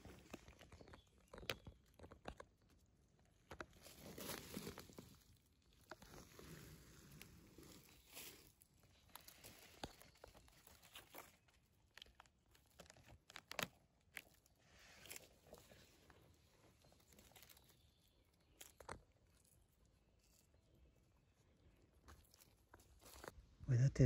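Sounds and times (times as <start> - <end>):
dry leaves rustling and crackling: 3.8 - 5.3, 6.0 - 11.4, 16.8 - 18.0.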